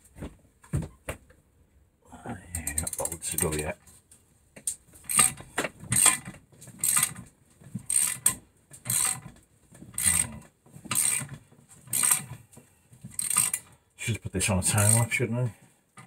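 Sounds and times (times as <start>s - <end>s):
socket ratchet clicking: 10.0s - 10.3s, 10.9s - 11.3s, 13.2s - 13.6s.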